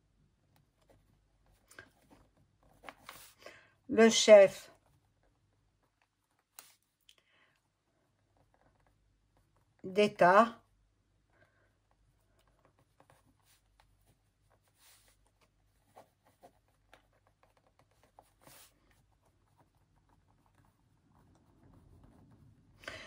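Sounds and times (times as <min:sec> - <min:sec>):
pen scratching on paper: 0:11.9 - 0:22.8.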